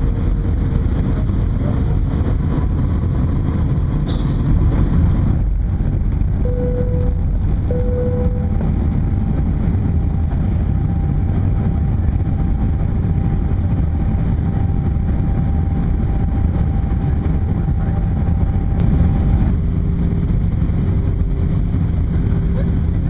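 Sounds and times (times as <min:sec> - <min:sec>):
airliner cabin roar: 0:00.0 - 0:23.0
faint steady whine: 0:05.2 - 0:23.0.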